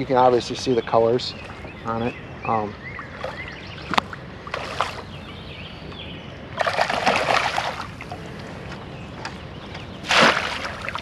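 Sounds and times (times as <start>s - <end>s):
short splash: 6.6s - 8.0s, 10.0s - 11.0s
fish thrashing and splashing: 6.6s - 8.2s, 10.1s - 11.0s.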